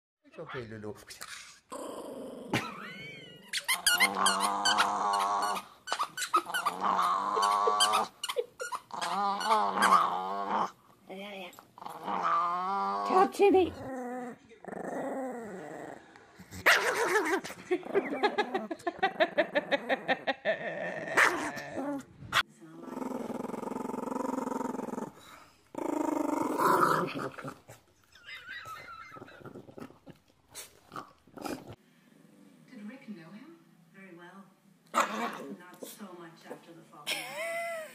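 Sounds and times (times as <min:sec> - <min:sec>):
small dog growling: 0:01.4 - 0:08.2, 0:08.8 - 0:10.8, 0:11.8 - 0:27.8, 0:28.6 - 0:32.7, 0:34.9 - 0:35.6.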